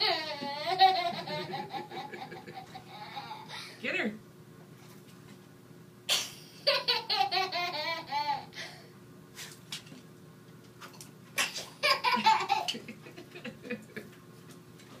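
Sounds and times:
toddler giggling: 0:00.0 - 0:03.5, 0:06.6 - 0:08.6, 0:11.6 - 0:14.0.

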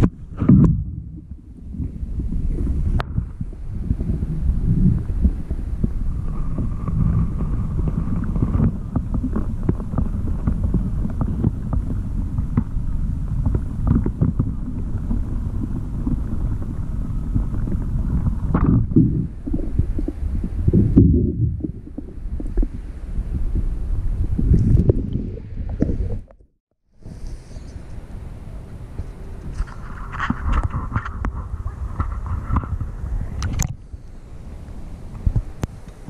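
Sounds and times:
underwater low rumble: 0:00.0 - 0:36.0
small underwater knocks and clicks: 0:06.3 - 0:12.8, 0:13.4 - 0:16.6, 0:17.3 - 0:20.2, 0:29.5 - 0:33.8.

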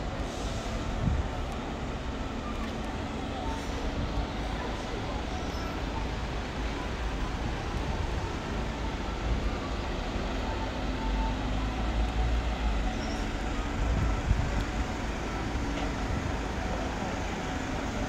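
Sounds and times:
street ambience rumble and hiss: 0:00.0 - 0:18.0.

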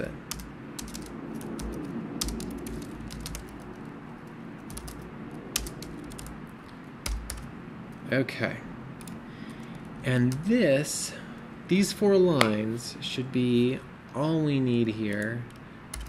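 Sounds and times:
keyboard typing clicks: 0:00.0 - 0:03.9, 0:04.7 - 0:05.0, 0:05.6 - 0:06.4, 0:07.0 - 0:07.5, 0:15.1 - 0:16.0.

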